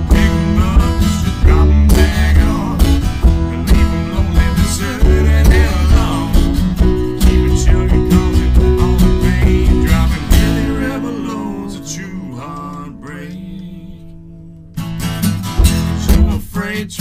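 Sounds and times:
acoustic guitar country blues: 0:00.0 - 0:17.0.

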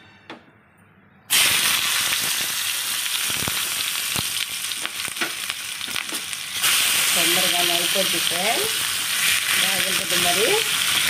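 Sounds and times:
oil popping and crackling: 0:01.3 - 0:07.4
onions sizzling in hot oil: 0:01.3 - 0:11.0.

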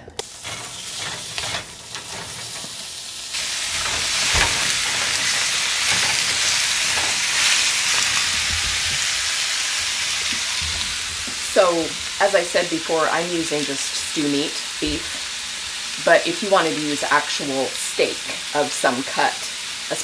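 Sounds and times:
meat sizzling in a skillet: 0:00.2 - 0:20.0.

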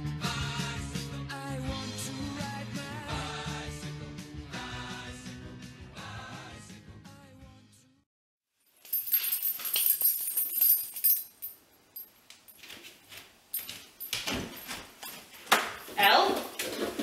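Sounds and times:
background music: 0:00.0 - 0:08.0
keys jangling and clattering: 0:08.7 - 0:17.0.

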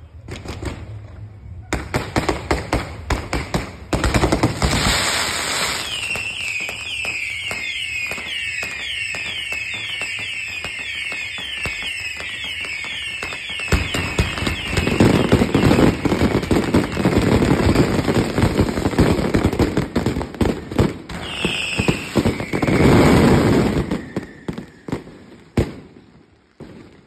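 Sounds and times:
fireworks cracks and bangs: 0:00.0 - 0:27.0
high firework whistle: 0:04.6 - 0:18.4, 0:21.1 - 0:25.8.

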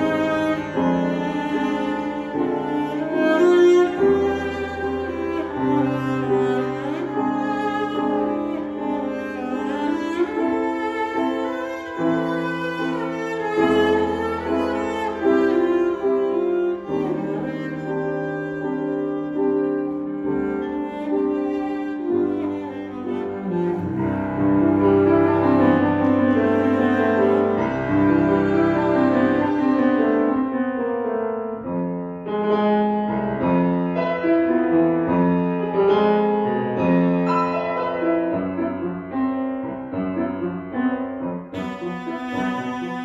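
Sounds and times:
cello bowed: 0:00.0 - 0:31.2, 0:31.8 - 0:43.0
grand piano chords: 0:00.0 - 0:43.0.

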